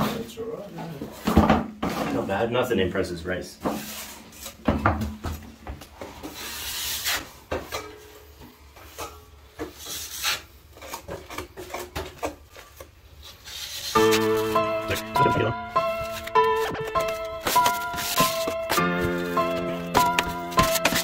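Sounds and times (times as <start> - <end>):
steel trowels scraping compound: 9.8 - 11.0, 13.4 - 21.0.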